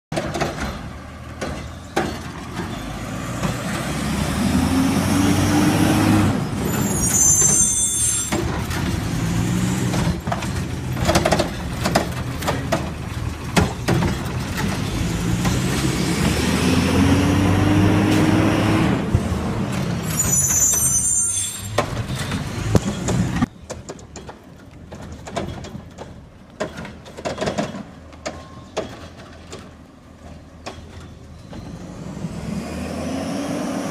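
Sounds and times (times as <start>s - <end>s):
knocks and clanks: 0.1s - 3.9s, 8.3s - 16.5s, 21.7s - 31.7s
distant truck: 0.1s - 33.9s
diesel engine revving: 2.3s - 7.3s, 8.4s - 20.2s, 31.6s - 33.9s.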